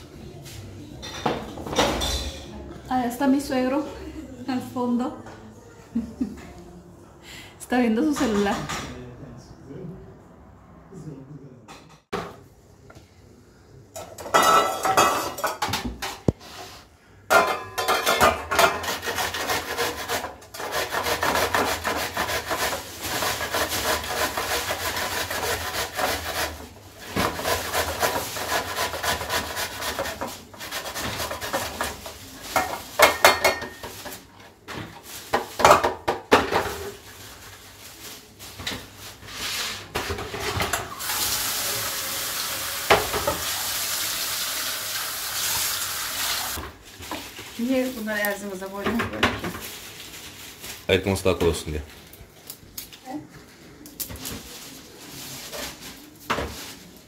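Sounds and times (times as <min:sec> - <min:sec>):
cucumber rasping on metal grater: 0:18.8 - 0:32.0.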